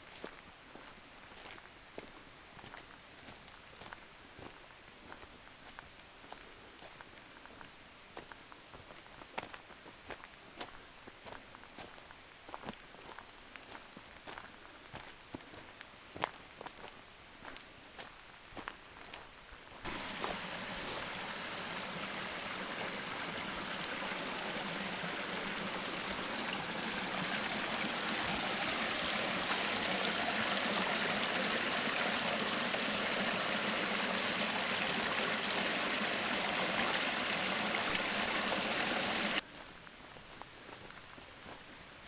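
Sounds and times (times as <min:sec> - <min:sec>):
footsteps on dirt trail: 0:00.0 - 0:21.6, 0:39.4 - 0:41.7
creek running over rocks: 0:19.8 - 0:39.6.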